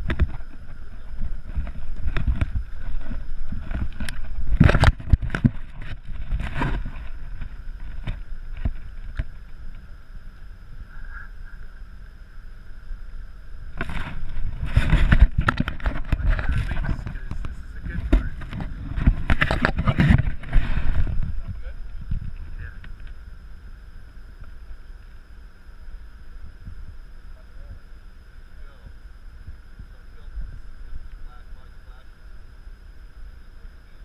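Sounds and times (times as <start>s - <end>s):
camera handling knocks and rumble: 0.0s - 9.8s, 13.7s - 23.2s.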